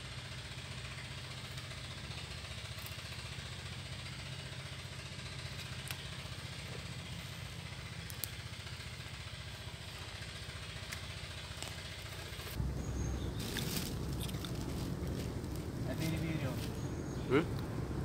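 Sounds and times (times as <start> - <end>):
small engine idling: 0.0 - 18.0
rough low rumble: 4.6 - 18.0.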